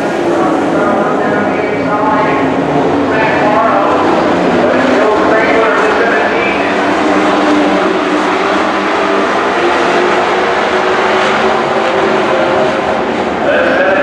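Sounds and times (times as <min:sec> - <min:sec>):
racing truck engines droning: 0:00.0 - 0:14.0.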